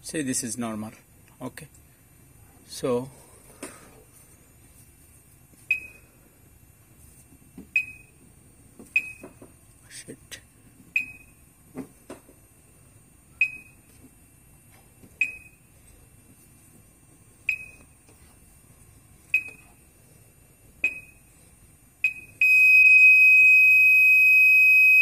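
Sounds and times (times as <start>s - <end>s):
buzzer steady high tone: 22.0s - 25.0s.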